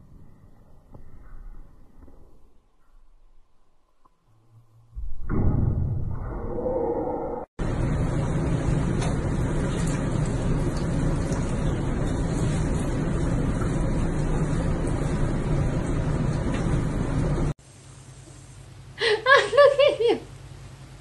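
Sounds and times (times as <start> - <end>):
water rushing into bathtub: 8.0 - 17.2.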